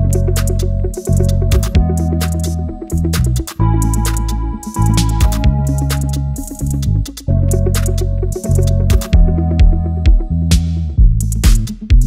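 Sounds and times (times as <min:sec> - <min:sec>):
drum machine beat: 0:00.0 - 0:12.0
synth bass line: 0:00.0 - 0:12.0.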